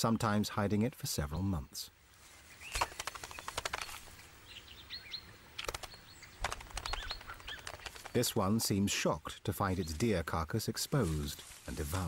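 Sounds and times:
bird wings fluttering: 0:02.4 - 0:04.3, 0:05.6 - 0:08.3.

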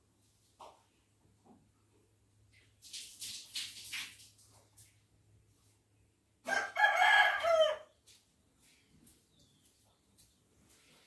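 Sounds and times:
rooster crowing: 0:06.4 - 0:07.9.

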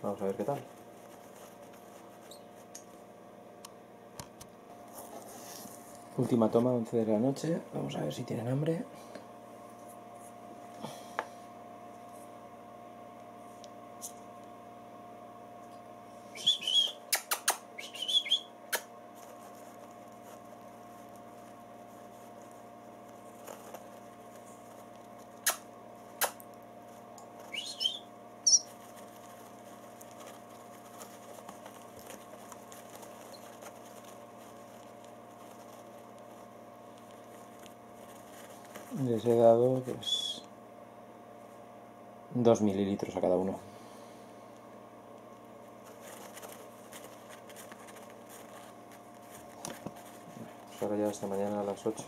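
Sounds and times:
steady background hum: 0:00.0 - 0:52.0
nestlings begging chirps: 0:27.5 - 0:28.8.

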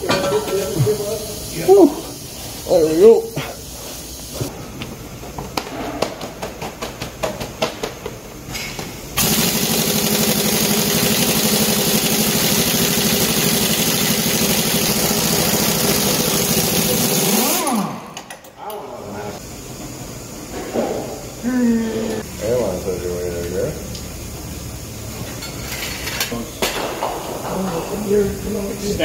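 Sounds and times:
pneumatic impact wrench hammering: 0:08.5 - 0:18.5.

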